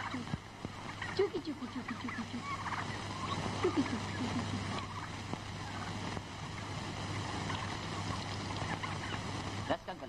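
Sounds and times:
film soundtrack hum and hiss: 0.0 - 10.0
faint clicks: 7.5 - 9.2.

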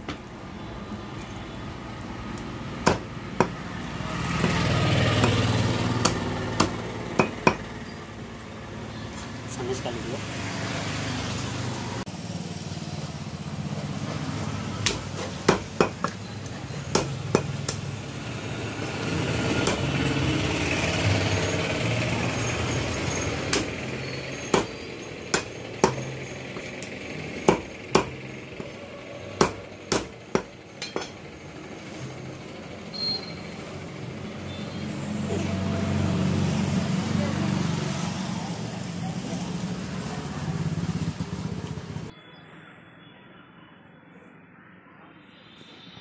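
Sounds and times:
cleaver chopping on wooden block: 2.8 - 3.6, 5.2 - 7.7, 14.8 - 16.2, 16.9 - 17.8, 19.6 - 19.9, 23.5 - 23.8, 24.5 - 26.7, 27.4 - 28.7, 29.4 - 30.5.

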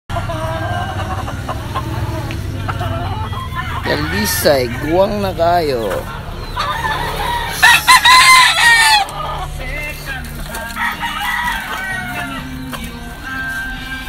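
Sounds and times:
rooster crowing: 2.0 - 5.3, 6.5 - 9.3, 10.7 - 12.6.

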